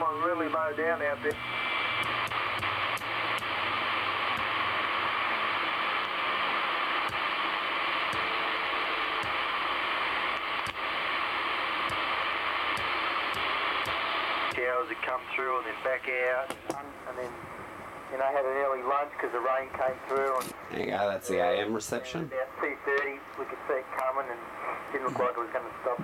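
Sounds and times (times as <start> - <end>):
radio static hiss: 0.0 - 26.0.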